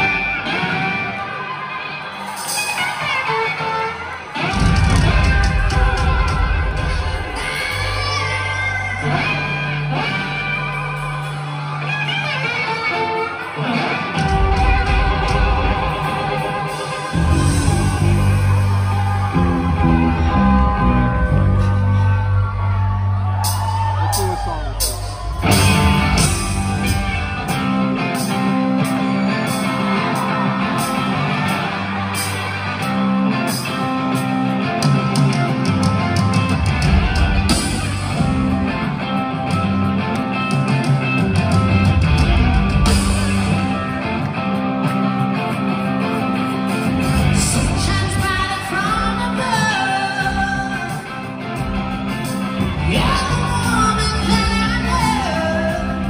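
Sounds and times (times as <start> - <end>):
live rock band: 0.0 - 56.0
person singing: 4.4 - 10.3, 47.0 - 51.6, 52.6 - 56.0.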